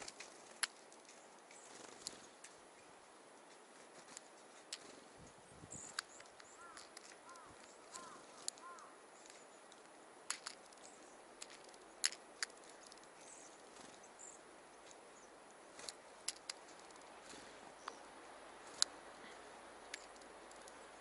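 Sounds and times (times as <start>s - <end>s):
faint high bird calls: 4.1s - 10.0s
bird chirps: 4.4s - 9.8s, 10.7s - 11.2s, 12.6s - 15.4s
bird bill clicking on metal tin: 5.8s - 13.1s, 19.8s - 20.8s.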